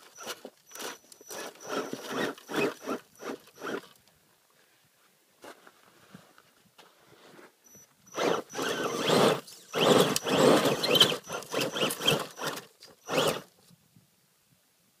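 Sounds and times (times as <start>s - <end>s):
electric motor whirring: 0.0s - 3.8s, 8.1s - 13.5s
tyres scraping on dirt and rock: 0.0s - 4.0s, 8.2s - 13.5s.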